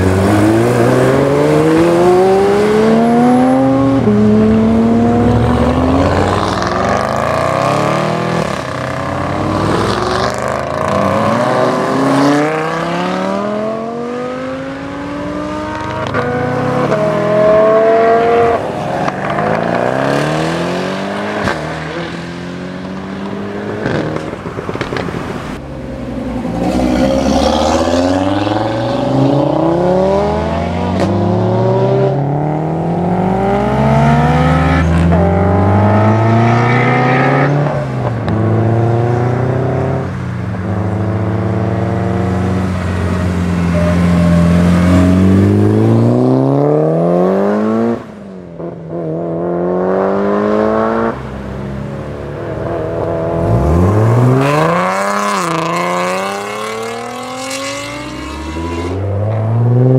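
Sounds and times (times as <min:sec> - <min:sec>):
car engines accelerating hard: 0:00.0 - 0:59.9
car engine sharp rev: 0:52.7 - 0:59.9.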